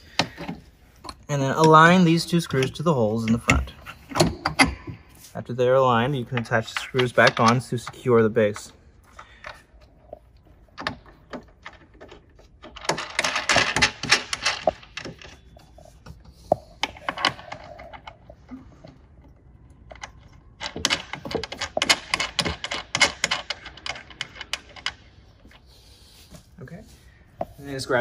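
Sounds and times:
metal screws clicking and rattling: 6.3 - 25.6
rapid clatter of metal parts: 10.8 - 15.8, 19.7 - 25.2.

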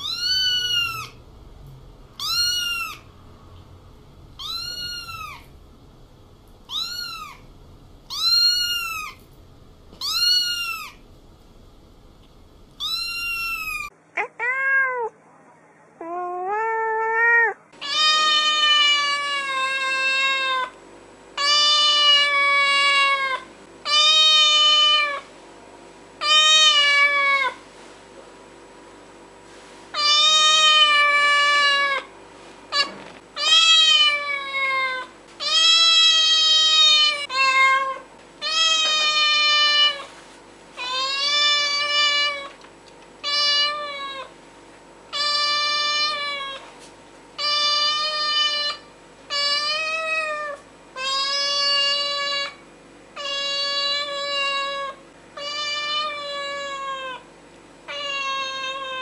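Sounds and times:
cat meowing: 0.0 - 1.2, 2.2 - 3.1, 4.4 - 5.5, 6.6 - 7.5, 8.1 - 9.2, 10.0 - 11.0, 12.8 - 15.2, 16.0 - 20.7, 32.8 - 40.1, 53.2 - 57.2, 57.9 - 59.0.

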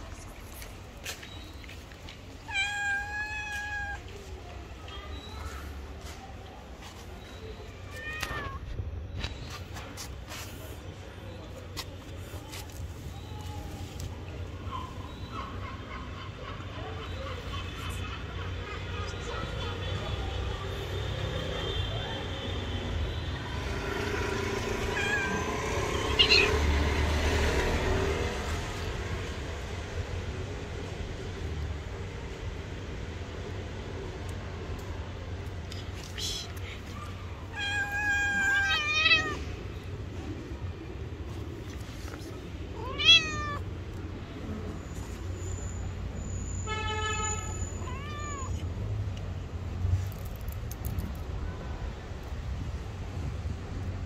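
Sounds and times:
low traffic rumble: 0.0 - 54.0
cat meowing: 2.4 - 4.2, 24.8 - 26.6, 37.4 - 39.6, 42.7 - 43.7, 47.3 - 48.7.

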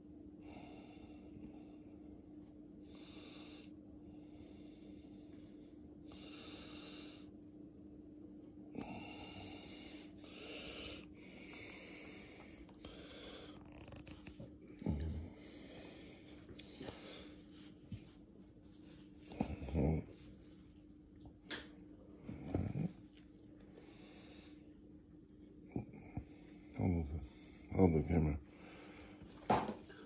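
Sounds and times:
steady hum: 0.0 - 30.0
person breathing: 2.8 - 7.3, 8.8 - 18.1, 23.6 - 24.8, 26.0 - 27.8, 28.4 - 30.0.

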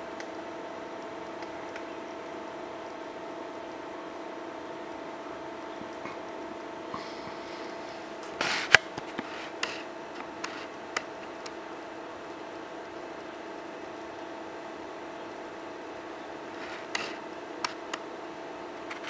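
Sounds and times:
projector cooling fan hum: 0.0 - 19.0
sharp clicks and knocks: 16.6 - 18.0.

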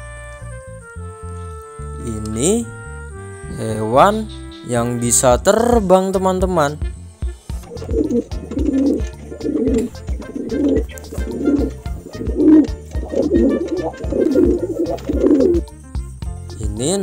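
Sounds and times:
pigeon cooing: 7.7 - 15.7.

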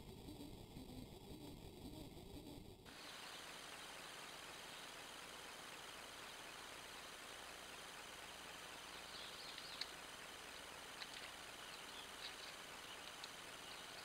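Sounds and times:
small bird chirping: 0.3 - 14.0
insect trill: 2.9 - 14.0
steady hiss: 2.9 - 14.0.

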